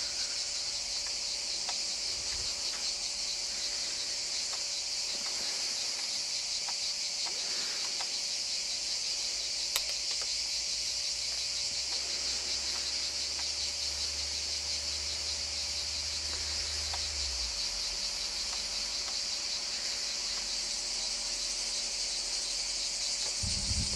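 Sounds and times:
cicadas chorus: 0.0 - 23.9
sharp click: 9.7 - 10.3
low rumble: 23.4 - 23.9.

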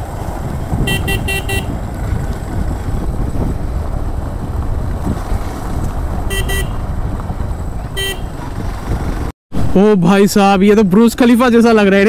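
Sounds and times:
motorcycle rumbling: 0.0 - 12.0
vehicle horn beeping: 0.8 - 1.8, 6.3 - 6.8, 7.9 - 8.4.

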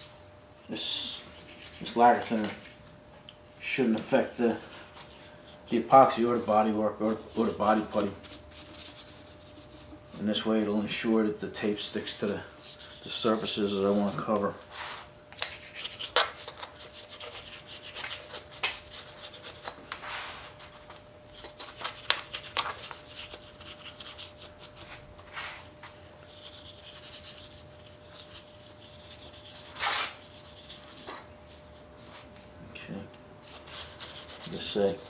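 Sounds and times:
paintbrush scrubbing metal: 5.7 - 10.0, 12.6 - 14.3, 26.3 - 31.6, 33.4 - 35.0.

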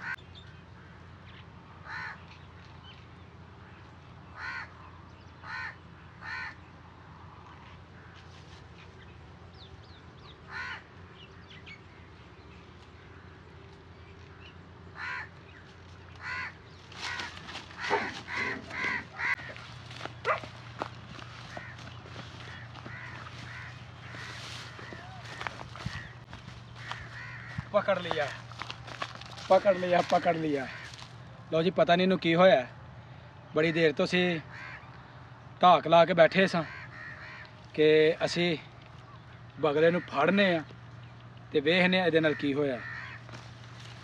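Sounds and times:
crows cawing: 0.0 - 1.2, 1.8 - 2.3, 3.6 - 6.7, 7.9 - 8.6, 10.4 - 11.1, 14.3 - 31.3, 33.6 - 35.2, 36.2 - 38.4, 39.0 - 40.7, 42.1 - 44.0.

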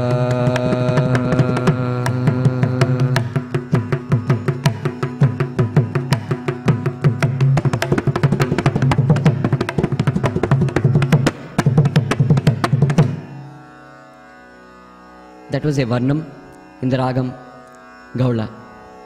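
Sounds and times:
mridangam drum strokes: 0.0 - 13.4.

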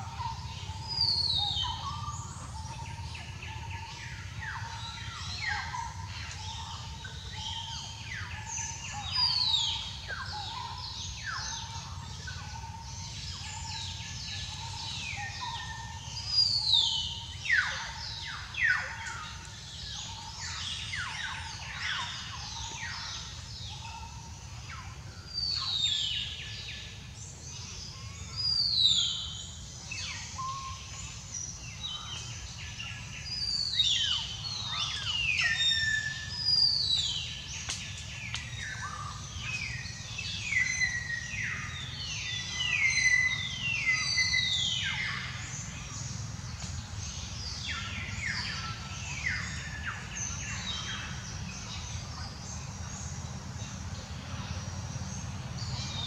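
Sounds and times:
birds whistling: 33.3 - 51.6.

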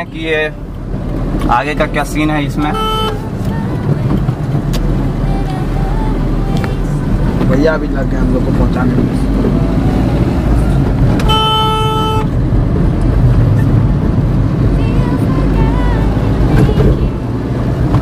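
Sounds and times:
car engine and road rumble: 0.0 - 18.0
car horn: 2.6 - 3.3, 11.1 - 12.4.

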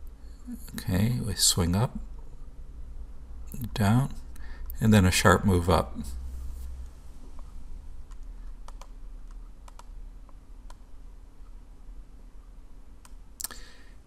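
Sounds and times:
faint low hum: 0.0 - 14.0
computer controls clicking: 7.4 - 11.6.

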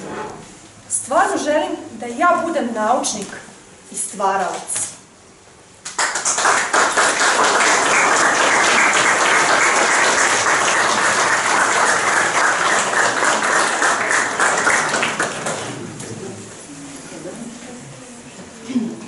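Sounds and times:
audience applauding: 5.9 - 16.0.

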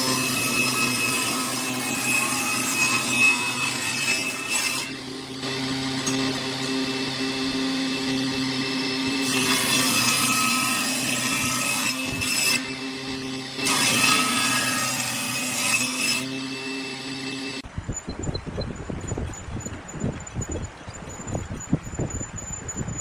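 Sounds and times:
saw blade rasping through wood: 0.0 - 17.6
table saw motor hum: 0.0 - 17.6.

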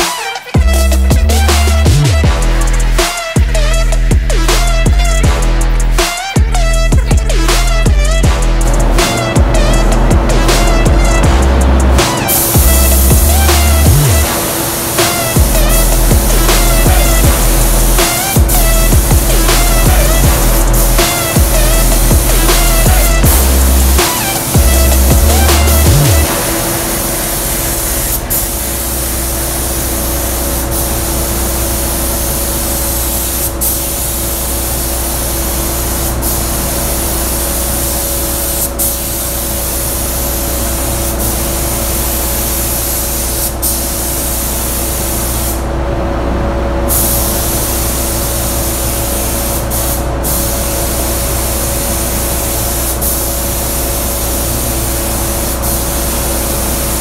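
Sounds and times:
spray gun hissing: 0.1 - 45.7, 46.9 - 57.0
steady low hum: 1.1 - 42.9.

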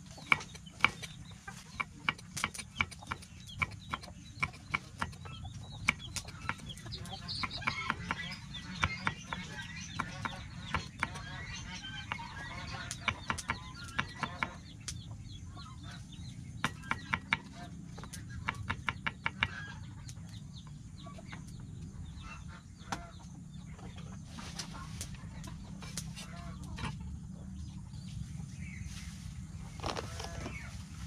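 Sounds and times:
knife chopping on wooden board: 1.8 - 5.2, 16.6 - 17.5.

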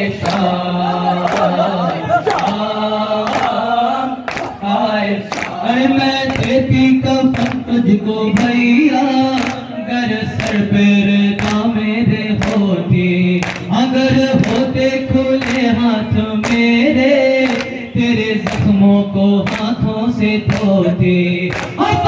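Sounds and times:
group of men chanting: 0.0 - 22.0
man singing lament over microphone: 0.0 - 22.0.

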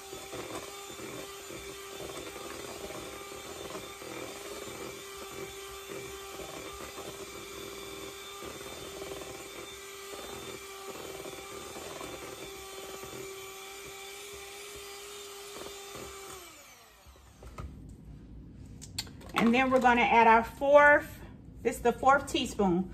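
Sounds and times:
electric hand mixer running: 0.0 - 17.6.

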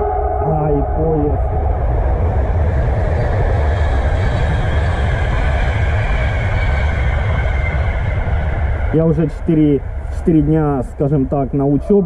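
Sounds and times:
train wheels rumbling on rails: 0.0 - 11.8.

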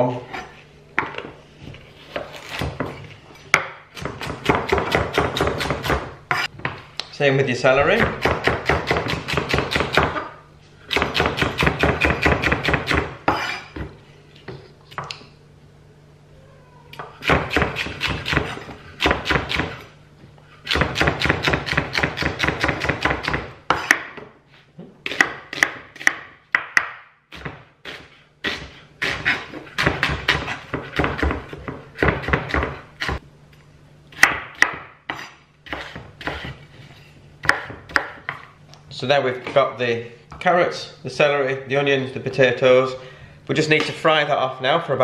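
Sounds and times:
knife chopping on wooden board: 8.0 - 10.3, 20.7 - 24.3, 25.0 - 33.2, 34.1 - 36.6, 37.4 - 38.5.

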